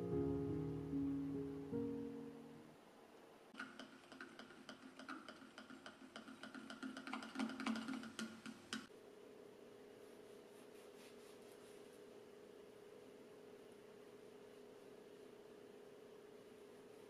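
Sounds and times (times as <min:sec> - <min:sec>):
metal utensil beating eggs in jug: 0:03.6 - 0:08.9
steady low hum: 0:08.9 - 0:17.0.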